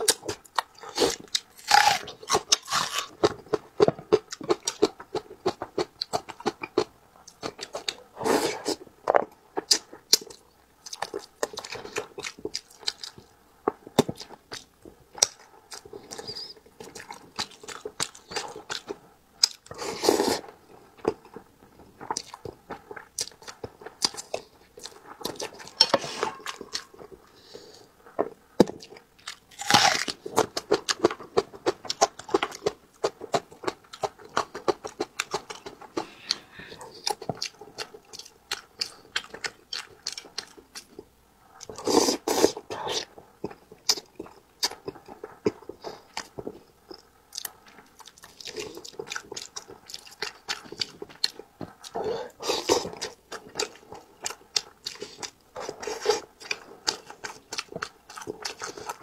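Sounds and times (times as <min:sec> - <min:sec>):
crunchy bites: 0:00.0 - 0:05.0, 0:28.2 - 0:36.4
person chewing food: 0:00.0 - 0:59.0.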